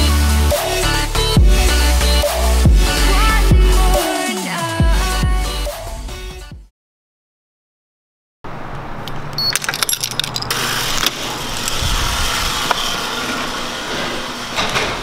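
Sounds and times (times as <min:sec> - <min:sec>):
keys jangling: 0:09.4 - 0:11.8.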